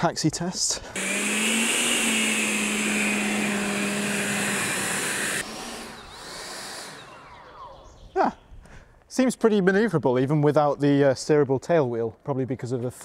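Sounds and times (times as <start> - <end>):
electric ducted fans whining: 1.0 - 8.3.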